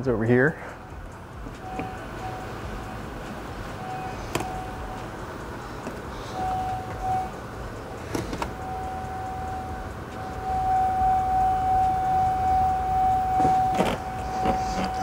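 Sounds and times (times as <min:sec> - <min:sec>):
single-pitch whine: 0:03.8 - 0:05.0, 0:06.3 - 0:07.4, 0:08.6 - 0:15.0.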